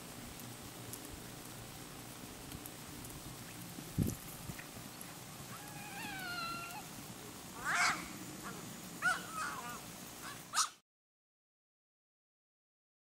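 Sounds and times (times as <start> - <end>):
faint outdoor background: 0.0 - 10.8
animal calling: 5.5 - 6.9, 7.6 - 10.8.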